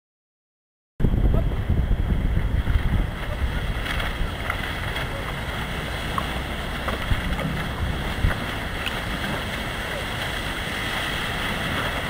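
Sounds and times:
ocean surf: 1.0 - 12.0
wind buffeting microphone: 1.0 - 12.0.

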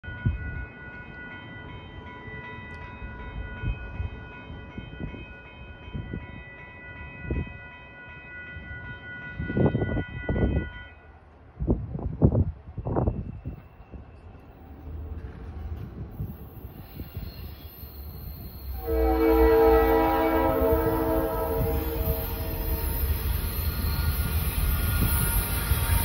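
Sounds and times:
locomotive horn blast: 18.7 - 23.0
low gusty rumbles: 18.8 - 26.0.

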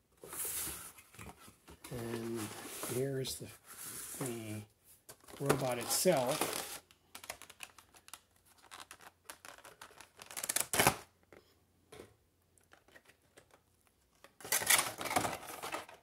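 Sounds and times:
toy packaging clicks and rustles: 5.1 - 11.0, 12.6 - 16.0.

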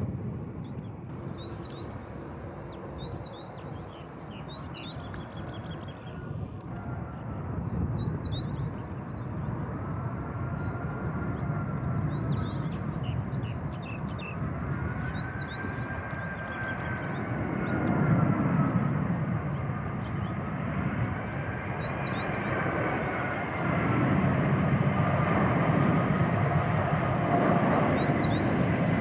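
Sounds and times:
jet airliner rumble and whine: 0.0 - 29.0
small birds chirping: 0.6 - 9.7, 10.4 - 18.8, 27.6 - 28.6.

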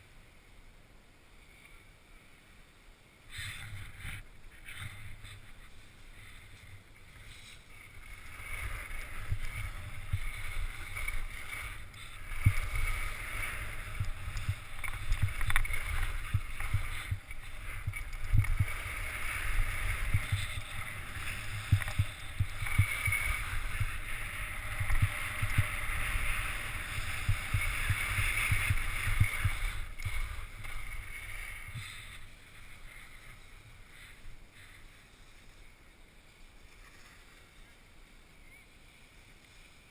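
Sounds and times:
skis scraping over snow: 3.1 - 39.9
wind buffeting microphone: 7.8 - 33.1.

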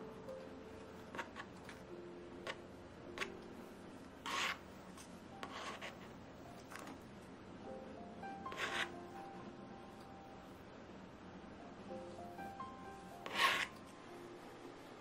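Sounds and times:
metal spatula scraping frosting: 1.0 - 1.6, 4.2 - 4.7, 5.4 - 6.1, 8.5 - 9.0, 13.2 - 13.8.

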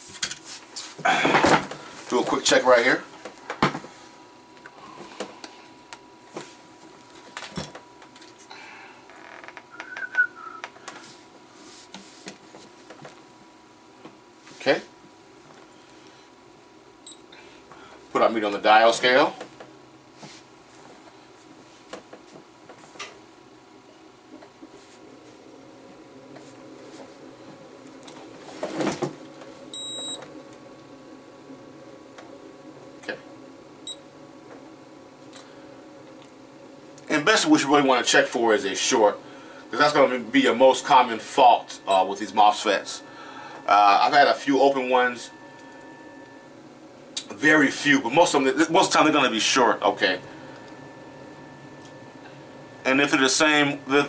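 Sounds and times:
multimeter beep: 17.0 - 17.2, 29.7 - 30.2, 41.8 - 42.3.

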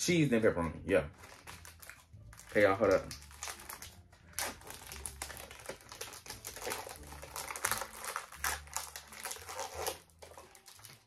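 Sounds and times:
plastic packaging crinkling: 1.1 - 11.0.

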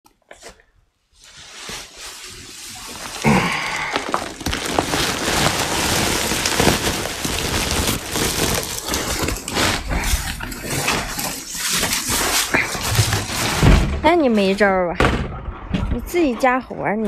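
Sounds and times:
plant material rustling: 1.1 - 13.6.

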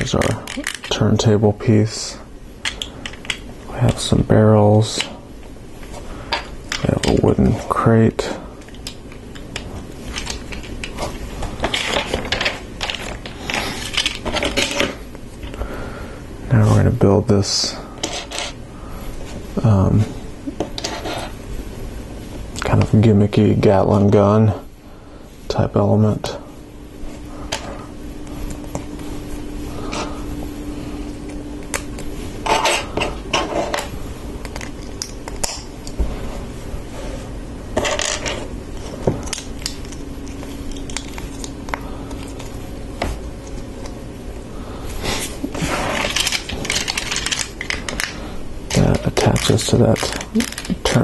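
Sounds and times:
plastic pieces clicking and rattling: 0.2 - 1.0, 11.6 - 14.9, 46.0 - 51.0.

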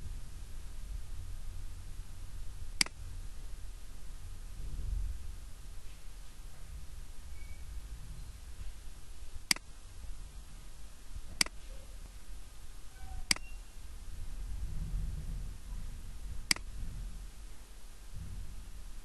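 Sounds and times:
low steady hum: 0.0 - 19.0
computer mouse clicks: 9.5 - 9.7, 16.5 - 16.7.

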